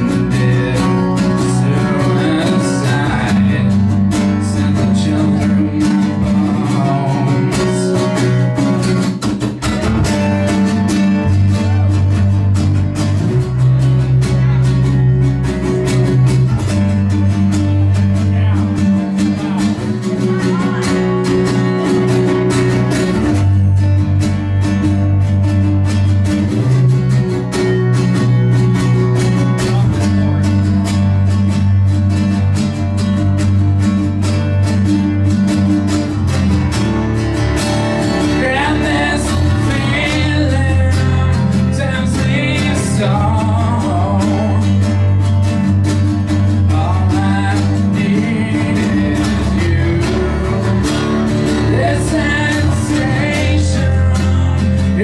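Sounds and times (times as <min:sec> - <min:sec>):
person singing: 0:00.0 - 0:08.7, 0:18.0 - 0:23.8, 0:38.0 - 0:45.1, 0:46.4 - 0:55.0
deep bass notes: 0:00.0 - 0:55.0
strummed acoustic guitars: 0:00.0 - 0:55.0.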